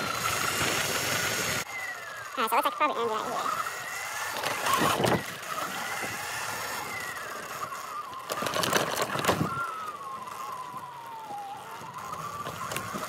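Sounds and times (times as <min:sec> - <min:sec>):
electric motor whining: 0:00.0 - 0:13.0
tyre and wind noise: 0:03.6 - 0:13.0.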